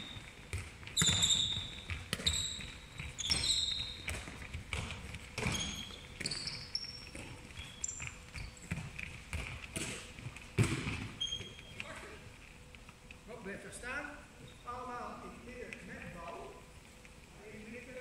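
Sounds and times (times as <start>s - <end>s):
sneakers squeaking on floor: 0.0s - 12.2s, 14.4s - 14.8s
balls bouncing on wooden floor: 0.0s - 13.1s.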